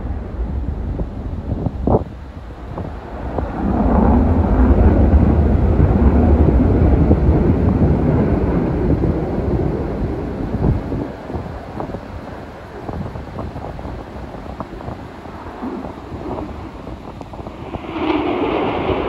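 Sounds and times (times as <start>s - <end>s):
fighter jet flying past: 2.4s - 11.6s, 13.9s - 19.0s.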